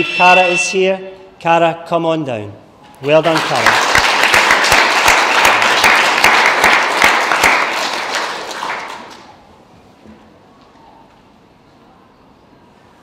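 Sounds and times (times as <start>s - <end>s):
small audience applauding: 3.0s - 9.4s.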